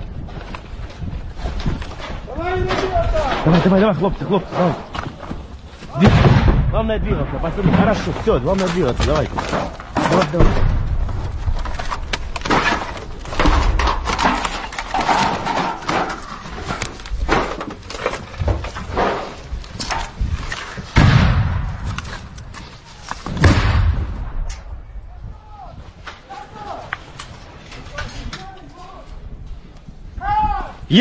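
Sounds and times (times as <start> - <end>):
gear knocks and clatter: 0.0 - 6.0, 7.2 - 21.0
thud: 5.9 - 16.2, 21.0 - 22.2, 23.3 - 24.7.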